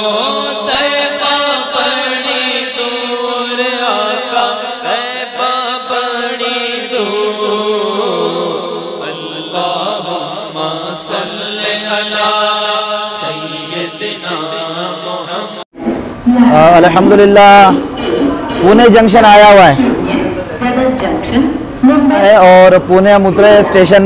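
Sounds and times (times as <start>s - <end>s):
person chanting a slow melody: 0.0s - 15.7s.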